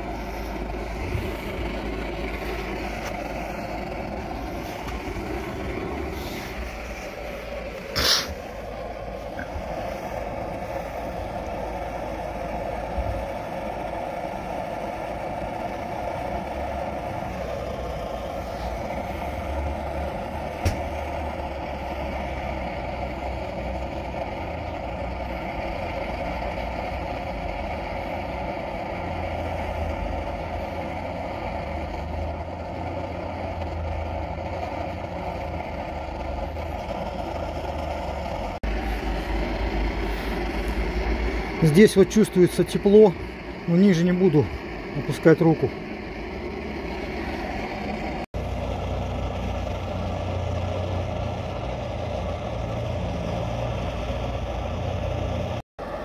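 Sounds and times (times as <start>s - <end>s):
low rumble: 0.0s - 13.4s
stove burner roaring: 0.0s - 56.0s.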